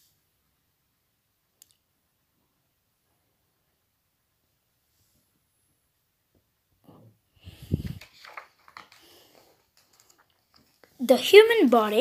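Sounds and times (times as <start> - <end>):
paper page turning: 7.6 - 12.0.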